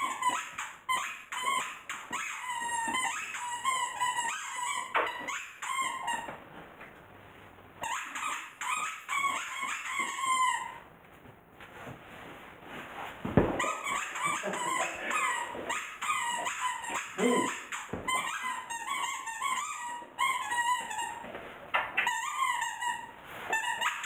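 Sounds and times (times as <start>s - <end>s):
dog whining: 13.6s - 20.5s.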